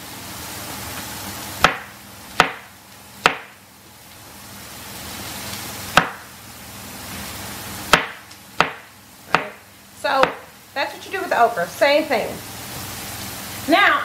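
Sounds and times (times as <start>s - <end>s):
knife chopping on wooden board: 1.6s - 3.5s, 5.9s - 6.3s, 7.9s - 9.6s, 10.2s - 10.5s.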